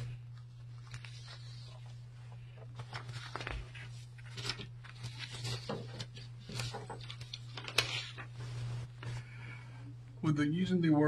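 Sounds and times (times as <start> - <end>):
steady low hum: 0.0 - 11.0
clicks and rustles of handling objects: 2.4 - 8.3.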